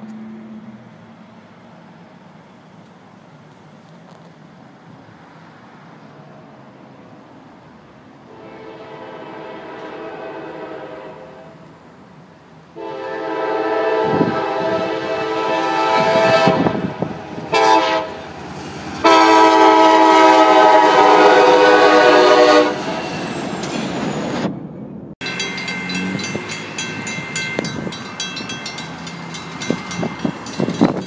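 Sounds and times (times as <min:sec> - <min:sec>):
passing train rumble: 0:00.0 - 0:31.0
locomotive air horn blasts: 0:08.3 - 0:11.7, 0:12.8 - 0:18.2, 0:19.0 - 0:22.9
railroad crossing bell ringing: 0:25.2 - 0:31.0.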